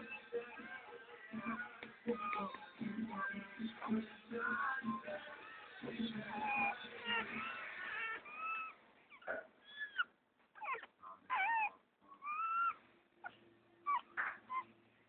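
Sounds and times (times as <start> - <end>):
puppies whimpering and squeaking: 1.4 - 2.6, 5.9 - 14.7.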